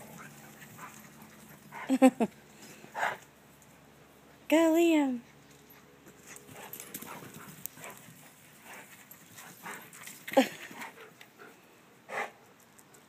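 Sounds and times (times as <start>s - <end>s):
dog breathing and moving: 5.2s - 13.0s.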